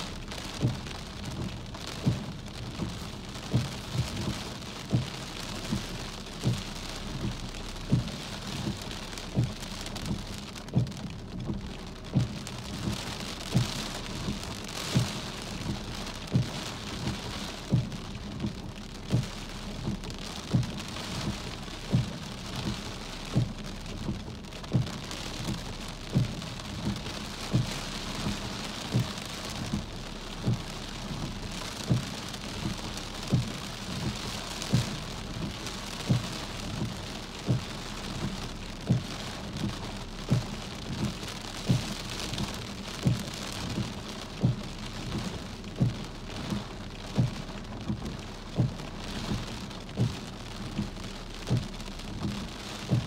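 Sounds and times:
steady rain falling: 0.0 - 53.0.

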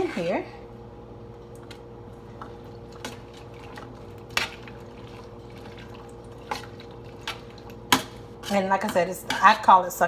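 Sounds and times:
steady low hum: 0.0 - 10.0
metal spoon stirring in saucepan: 2.4 - 10.0.

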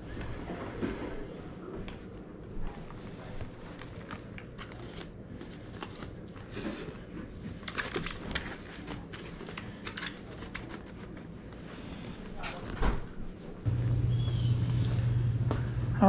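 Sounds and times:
low hum: 13.5 - 16.0.

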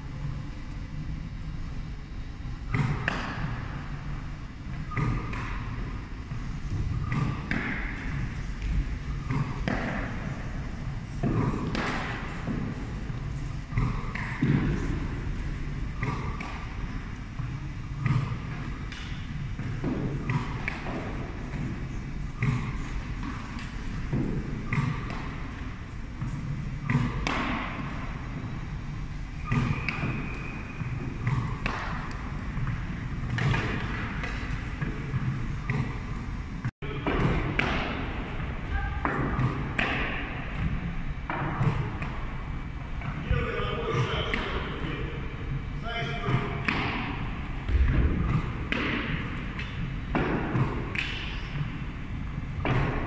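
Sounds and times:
balls thudding off goalie pads: 46.3 - 51.4
balls bouncing on wooden floor: 47.7 - 51.4.

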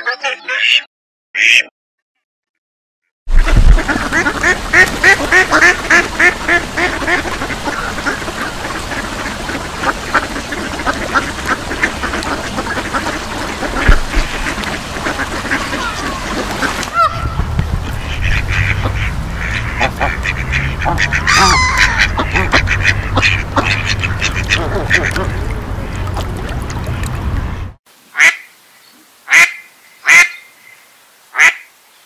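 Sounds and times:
ducks quacking: 0.0 - 1.7, 3.4 - 27.3.

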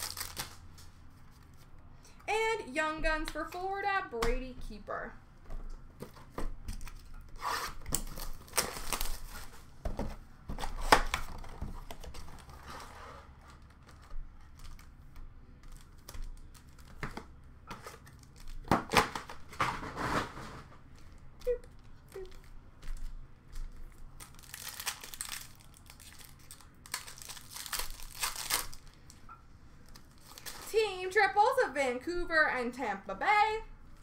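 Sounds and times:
cardboard tearing: 0.0 - 0.6, 6.8 - 9.6, 17.8 - 20.7, 24.2 - 28.8
wrappers crinkling: 0.0 - 0.8, 6.8 - 9.6, 13.3 - 17.0, 21.0 - 29.2, 29.8 - 31.0.

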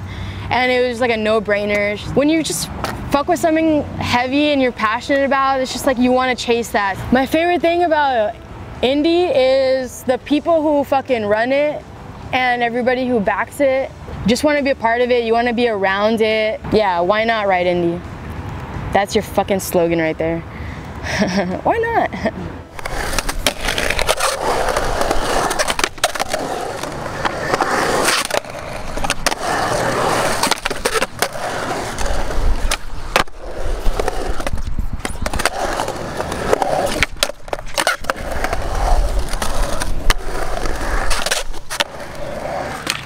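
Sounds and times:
skateboard rolling on concrete: 0.0 - 20.4, 21.2 - 43.0
skateboard trucks grinding: 22.7 - 43.0
skateboard clacking down: 22.8 - 43.0.

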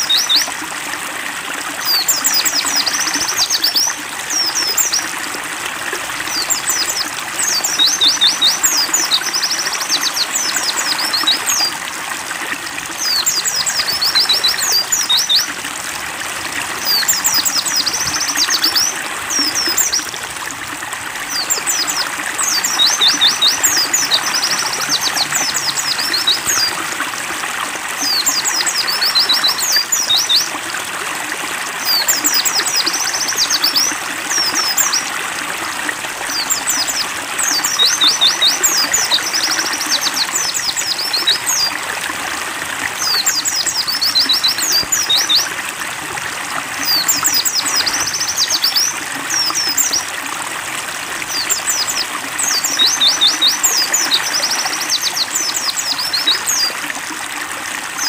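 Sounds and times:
stream trickling: 0.0 - 58.0
bird twittering: 6.2 - 11.7, 13.0 - 15.6, 16.8 - 20.1, 21.2 - 26.8, 43.0 - 45.5.

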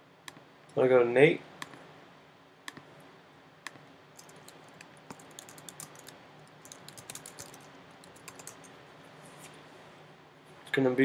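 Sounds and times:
keyboard typing: 4.2 - 8.8.

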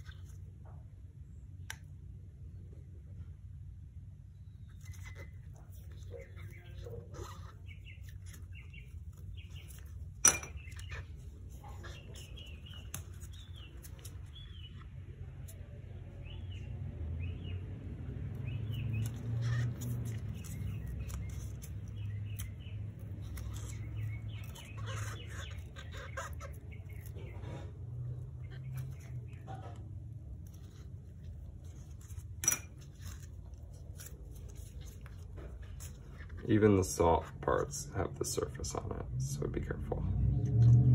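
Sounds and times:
low steady hum: 0.0 - 40.9
light squeaks and clicks: 4.6 - 16.5, 18.4 - 36.6.

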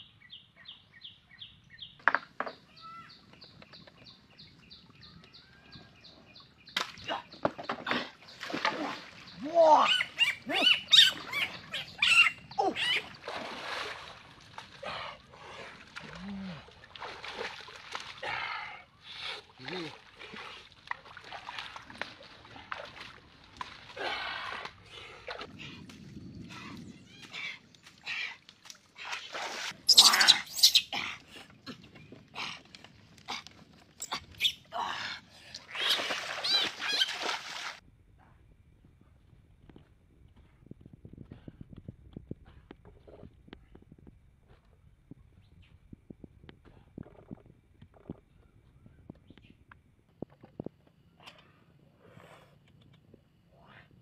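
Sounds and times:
splashing through muddy water: 6.6 - 37.8
animal squeals and cries: 9.8 - 13.1, 29.9 - 31.0.

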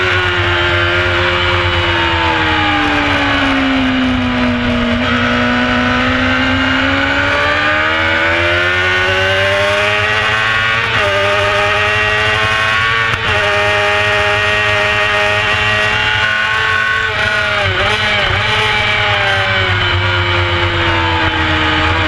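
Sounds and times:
motorcycle engine at full race pace: 0.0 - 22.0.

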